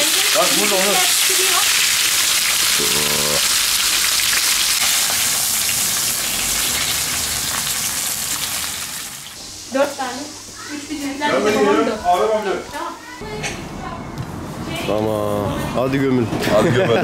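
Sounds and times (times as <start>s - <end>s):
fish sizzling in hot oil: 0.0s - 10.8s.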